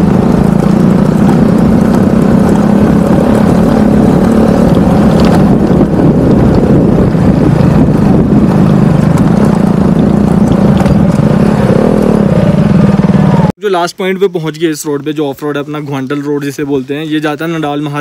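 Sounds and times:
motorcycle engine running: 0.0s - 13.6s.

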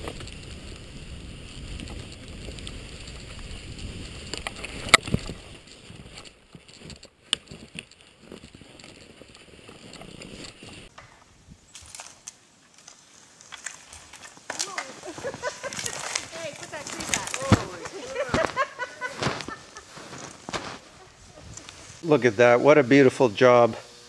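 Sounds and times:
skis swishing over snow: 0.0s - 10.9s, 12.8s - 22.2s
wind rumble on microphone: 0.0s - 11.7s.

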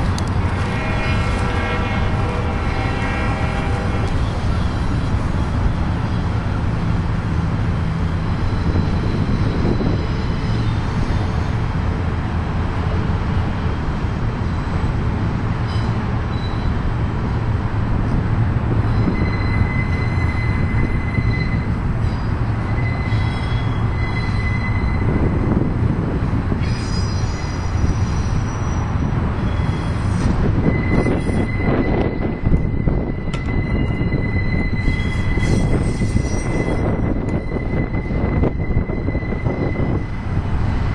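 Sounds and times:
freight train wheels rumbling: 0.0s - 40.9s
high wheel squeal: 8.2s - 11.6s, 15.6s - 16.8s, 18.8s - 25.6s, 26.6s - 40.4s.

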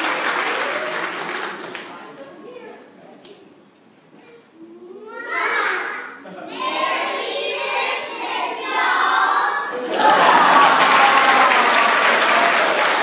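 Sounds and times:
audience applause: 0.0s - 2.2s, 9.7s - 13.0s
children's choir singing: 6.2s - 10.2s.

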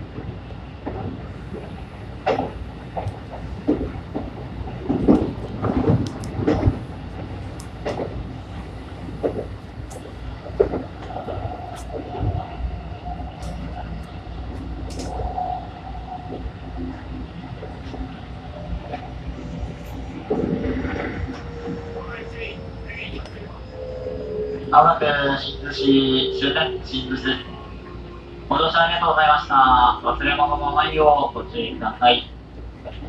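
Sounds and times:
train wheels rumbling on rails: 0.0s - 33.0s
track knocks and clicks: 0.1s - 15.6s.

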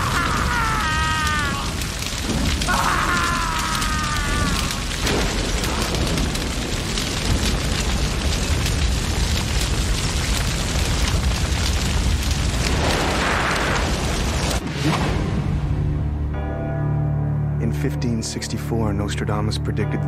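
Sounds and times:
man screaming: 0.0s - 2.0s, 2.6s - 5.0s
large fire roaring and crackling: 0.0s - 16.5s.

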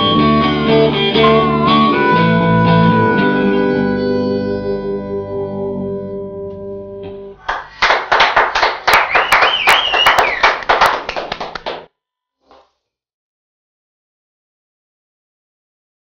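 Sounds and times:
live band with harmonica: 0.0s - 6.4s
person whistling: 1.2s - 3.2s, 8.9s - 10.7s
audience applause: 7.4s - 11.9s.

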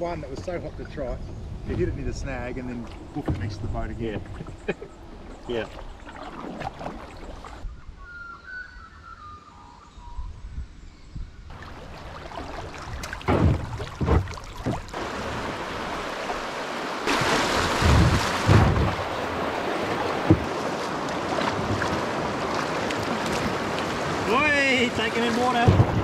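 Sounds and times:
wind on microphone: 0.0s - 6.0s, 17.1s - 24.4s, 25.6s - 26.0s
river water rushing over rocks: 11.5s - 26.0s
short low thumps: 13.0s - 15.0s, 17.6s - 19.1s.

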